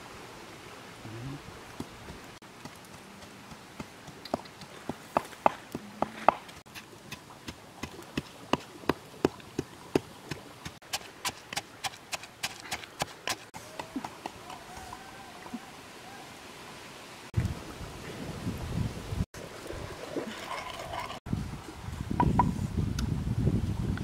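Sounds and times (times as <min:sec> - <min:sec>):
wind rumble on microphone: 0:17.4 - 0:20.1, 0:20.7 - 0:24.0.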